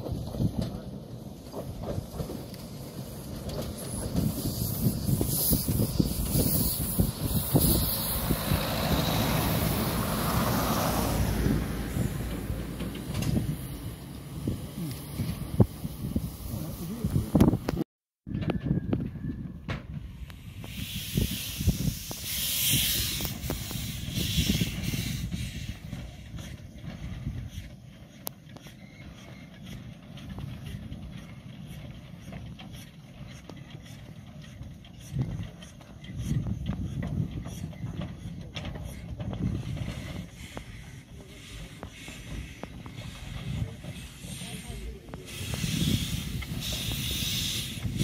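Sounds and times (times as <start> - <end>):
steam locomotive hissing: 0.0 - 17.8, 20.0 - 48.0
wind on microphone: 3.3 - 27.8, 34.9 - 40.9, 41.6 - 48.0.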